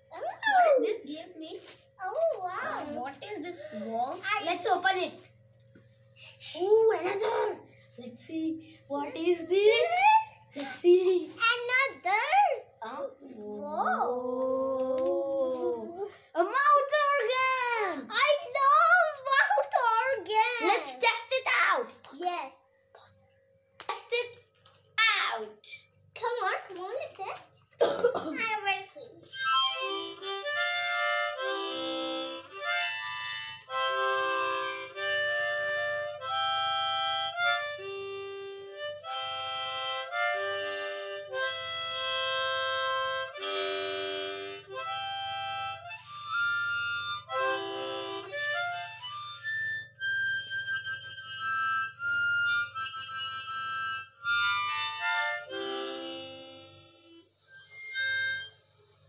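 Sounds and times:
harmonica notes and chords: 29.2s - 59.0s.

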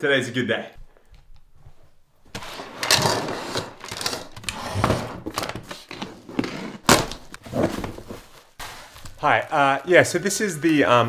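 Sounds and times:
cardboard rubbing and scraping: 2.4s - 9.2s.

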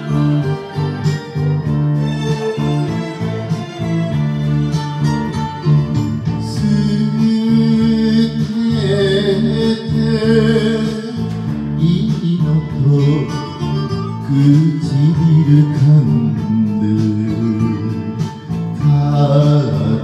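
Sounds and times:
karaoke backing track: 0.0s - 20.0s
man singing into microphone: 5.4s - 20.0s.

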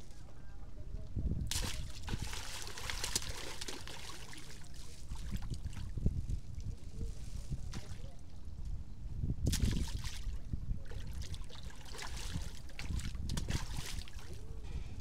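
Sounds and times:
fish splashing at water surface: 1.5s - 5.7s.

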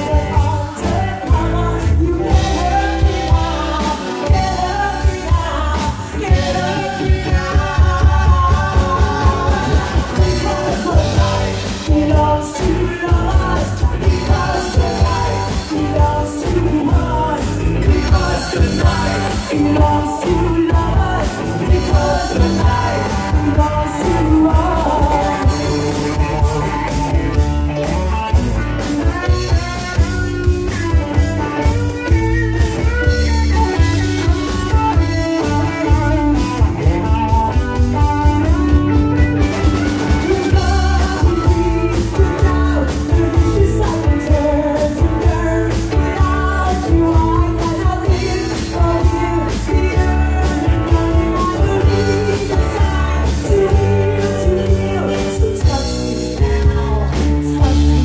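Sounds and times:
female lead vocals: 0.0s - 27.4s, 39.6s - 58.0s
live rock band playing: 0.0s - 58.0s.

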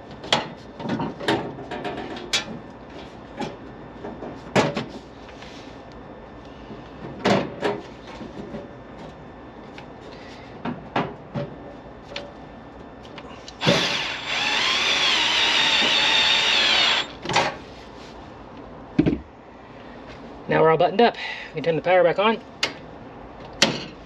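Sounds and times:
cordless drill driving screw: 13.6s - 17.2s.

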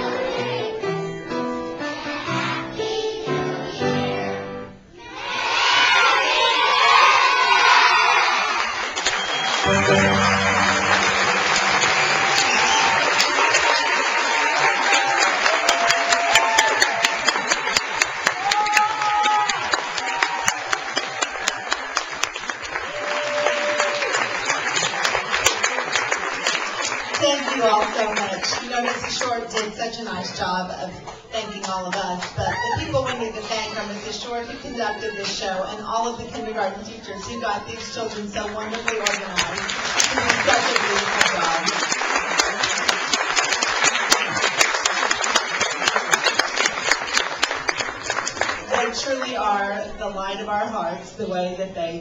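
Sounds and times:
audience applauding: 8.0s - 29.4s, 38.8s - 49.0s.

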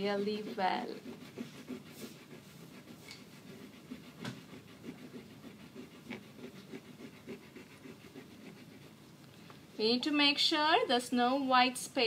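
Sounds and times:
oil pastel scrubbing on paper: 0.0s - 9.0s.

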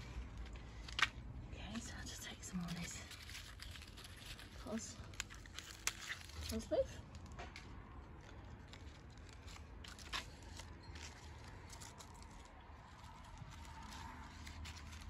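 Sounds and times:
lettuce leaves snapping: 0.4s - 1.2s, 2.7s - 7.3s
lettuce leaves rustling: 2.5s - 7.3s, 8.1s - 15.0s.

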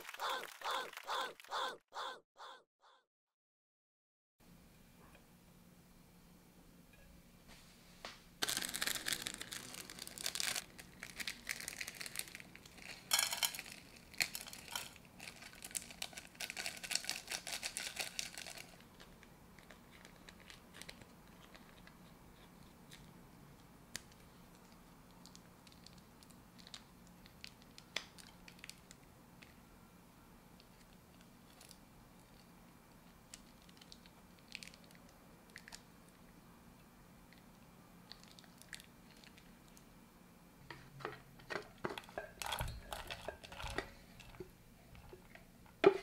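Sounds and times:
plastic sachets tearing and crinkling: 8.4s - 21.9s.

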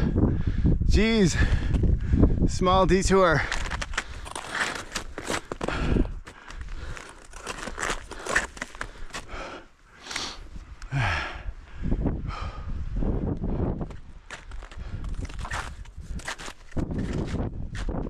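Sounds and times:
person breathing hard: 0.0s - 2.4s, 3.5s - 13.8s
snowshoes crunching on snow: 3.4s - 9.3s.

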